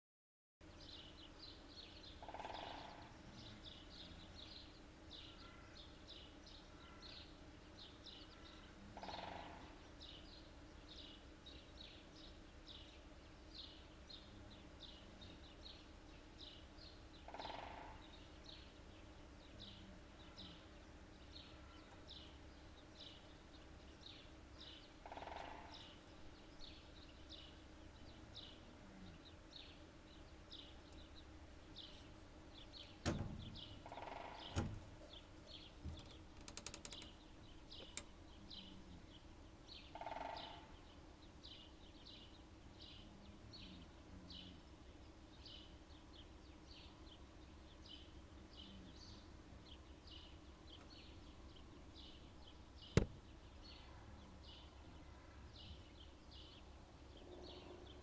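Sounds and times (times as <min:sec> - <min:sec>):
small birds chirping: 0:00.6 - 0:58.0
woodpecker drumming: 0:02.2 - 0:03.1, 0:17.2 - 0:18.2, 0:25.0 - 0:26.1, 0:32.9 - 0:38.2, 0:39.9 - 0:40.8.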